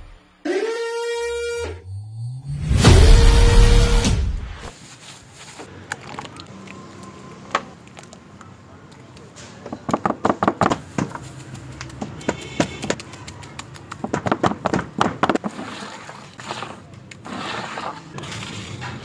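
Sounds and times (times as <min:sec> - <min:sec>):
sharp taps and clicks: 0:09.9 - 0:15.4
straightedge scraping plaster: 0:15.3 - 0:19.0.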